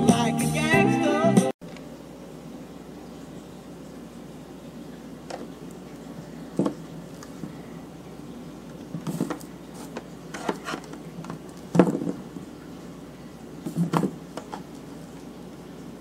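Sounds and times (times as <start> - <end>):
low steady hum: 1.6 - 16.0
handling knocks and clicks: 8.7 - 12.2.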